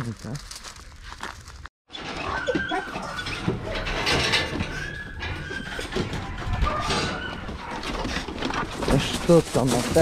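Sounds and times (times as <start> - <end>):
dogs whining: 2.0 - 8.3
dog yelps: 2.2 - 3.9, 6.5 - 8.0.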